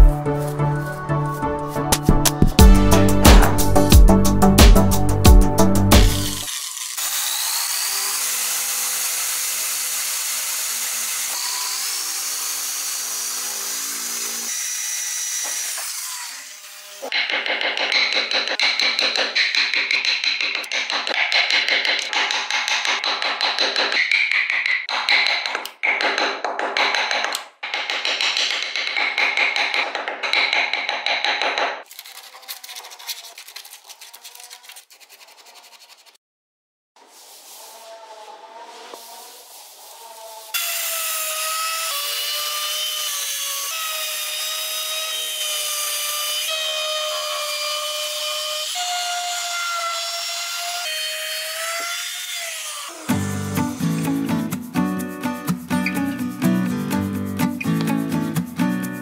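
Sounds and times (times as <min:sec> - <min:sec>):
drill bit cutting wood: 0:06.2 - 0:17.2, 0:40.5 - 0:53.3
electric drill whining: 0:06.4 - 0:14.7
gouge chipping wood: 0:17.0 - 0:36.1
scratching and rubbing on wood: 0:31.9 - 0:36.2, 0:37.0 - 0:40.5.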